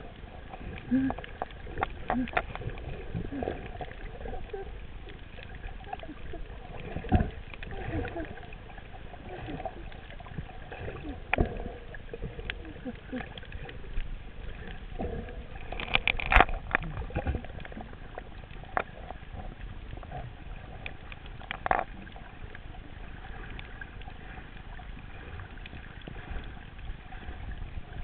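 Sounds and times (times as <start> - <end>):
muffled underwater water rush: 0.0 - 28.0
underwater clicks and knocks: 0.6 - 8.6, 9.2 - 22.6.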